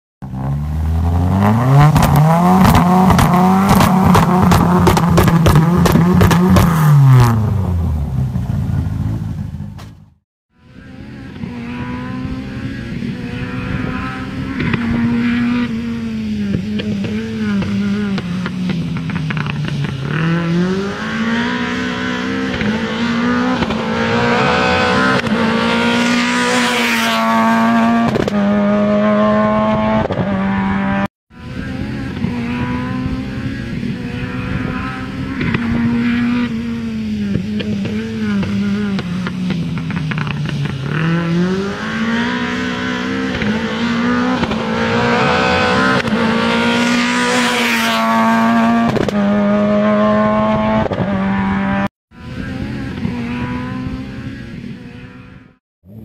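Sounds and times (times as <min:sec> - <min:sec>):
rally car engine revving: 0:00.2 - 0:10.0, 0:10.6 - 0:56.0
engine crackles: 0:13.6 - 0:30.3, 0:31.5 - 0:51.1.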